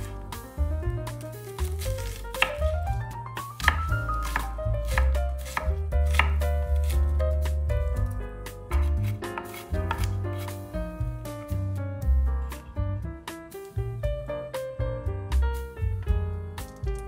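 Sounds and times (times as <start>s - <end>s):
light background music: 0.0s - 17.0s
knife chopping on cutting board: 1.5s - 7.6s, 8.7s - 10.6s.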